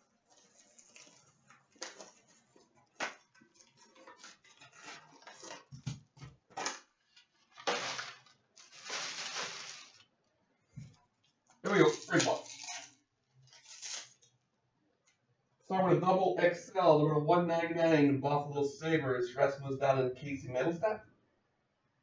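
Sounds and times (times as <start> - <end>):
foil wrappers crinkling and tearing: 0.1 - 10.1, 11.6 - 14.3.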